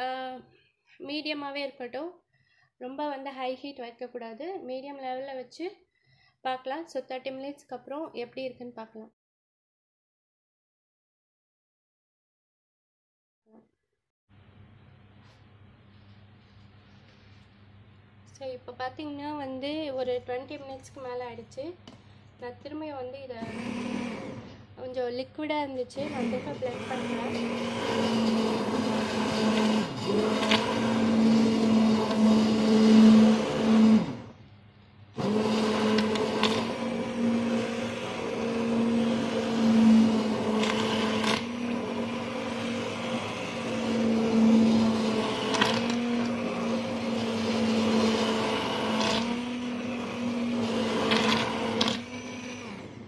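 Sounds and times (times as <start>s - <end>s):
stick blender motor hum: 23.3s - 24.7s, 25.9s - 34.4s, 35.2s - 53.0s.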